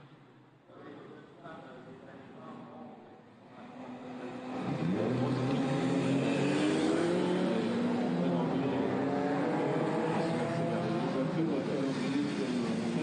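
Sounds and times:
racing car engines accelerating: 3.5 - 13.0.

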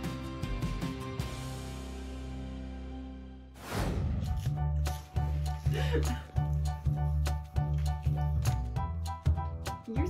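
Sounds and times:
soft background music: 2.9 - 10.0
whoosh: 3.6 - 4.5.

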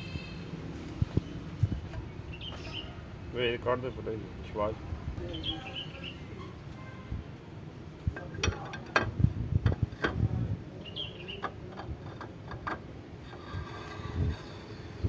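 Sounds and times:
metal clicks and knocks: 8.1 - 10.2, 11.4 - 13.4.

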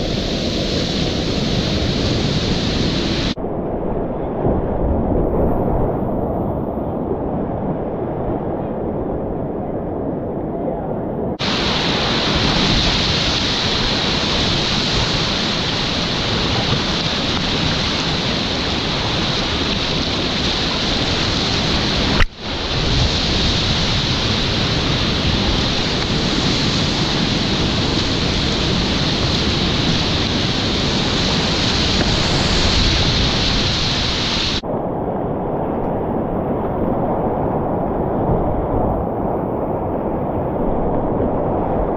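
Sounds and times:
whitewater rapids rushing: 0.0 - 3.4, 11.4 - 34.6.

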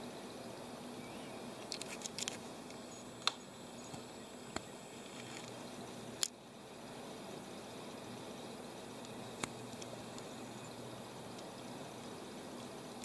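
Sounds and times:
faint hiss: 0.0 - 13.0
camera clicks: 1.6 - 2.4.

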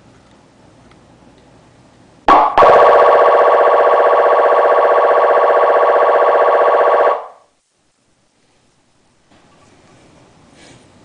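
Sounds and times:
electronic siren warble: 2.3 - 7.4.

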